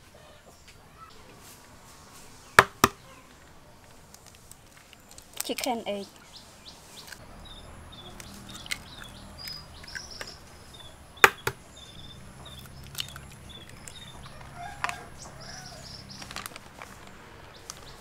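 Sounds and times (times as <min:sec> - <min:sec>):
small birds chirping: 0:00.0 - 0:18.0
eggs cracking: 0:08.2 - 0:11.6, 0:12.5 - 0:15.0.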